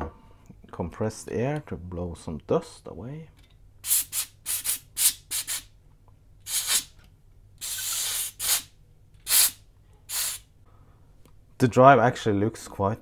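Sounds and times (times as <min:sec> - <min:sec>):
compressed air hissing blasts: 0:03.8 - 0:05.8, 0:06.4 - 0:07.0, 0:07.6 - 0:10.5.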